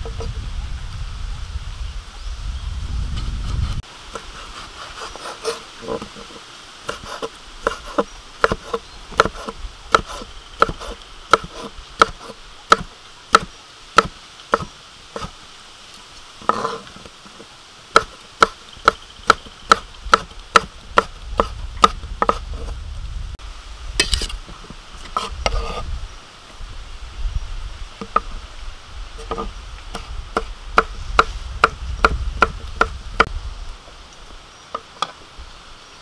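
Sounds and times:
knife chopping on wooden board: 6.9s - 15.3s, 18.0s - 22.4s.

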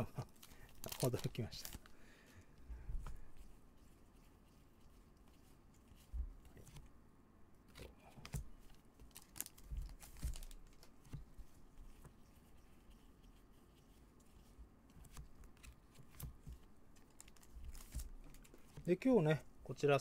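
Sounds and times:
trading cards clicking and rustling: 0.2s - 1.9s, 15.0s - 19.2s.

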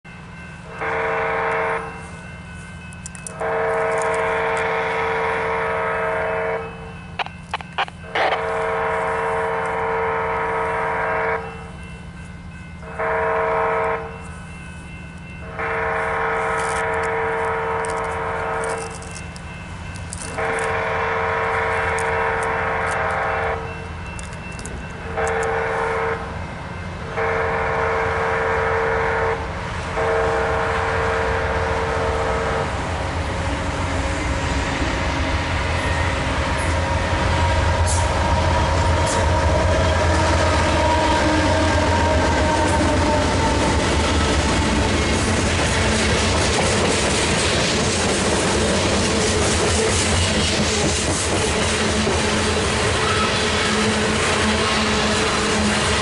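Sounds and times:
low train rumble: 0.0s - 56.0s
locomotive air horn blasts: 0.6s - 2.0s, 3.3s - 6.9s, 8.0s - 11.7s, 12.8s - 14.1s, 15.4s - 18.9s, 20.3s - 23.7s, 25.0s - 26.3s, 27.1s - 29.4s, 30.0s - 32.8s, 35.8s - 44.9s, 51.8s - 56.0s.

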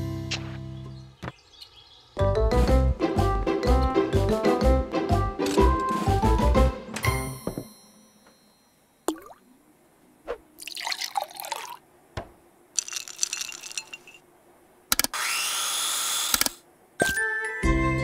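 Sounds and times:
cheerful music: 2.2s - 7.6s, 17.1s - 18.0s.

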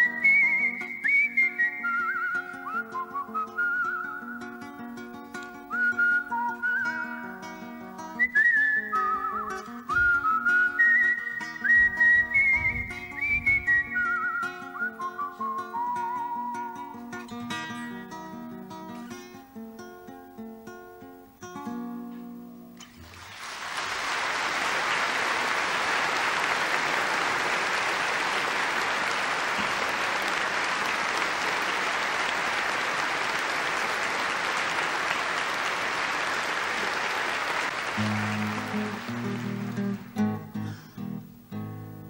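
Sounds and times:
acoustic guitar playing: 0.0s - 23.3s, 37.5s - 42.0s
audience applauding: 23.0s - 40.5s.

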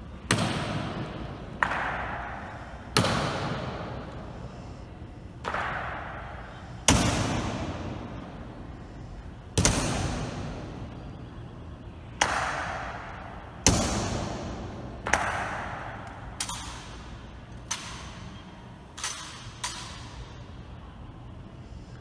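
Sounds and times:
rifle clacks echoing: 19.0s - 20.1s.

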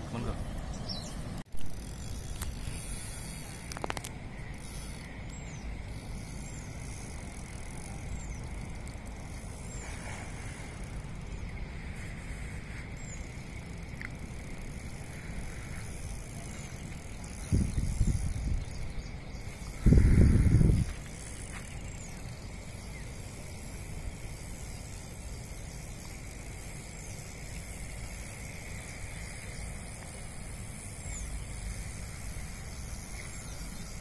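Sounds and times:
wind rumble on microphone: 15.8s - 21.5s.

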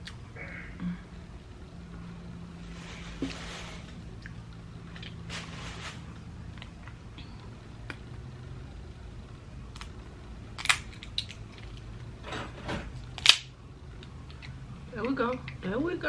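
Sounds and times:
crab shell cracking by hand: 10.6s - 11.8s, 13.2s - 14.6s.

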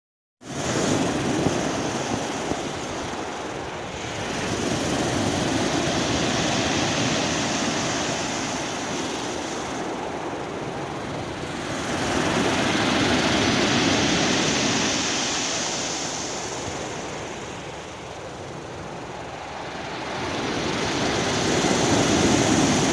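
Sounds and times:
waves breaking on pebble beach: 0.5s - 10.5s, 11.3s - 17.7s.

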